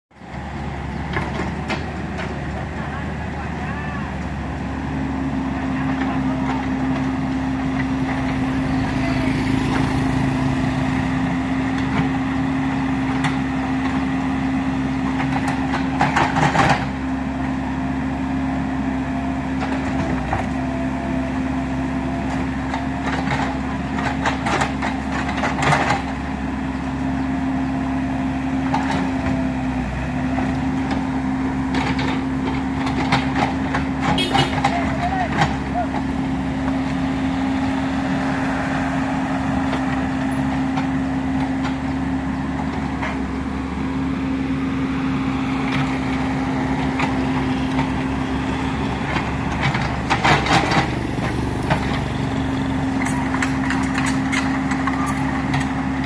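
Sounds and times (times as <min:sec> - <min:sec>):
excavator diesel engine running: 0:00.1 - 0:56.0
excavator bucket clattering: 0:49.0 - 0:56.0.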